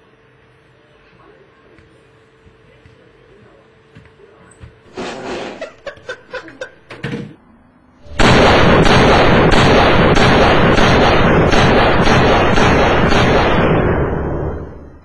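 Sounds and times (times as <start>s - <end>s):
gunfire barrage: 8.1s - 14.8s.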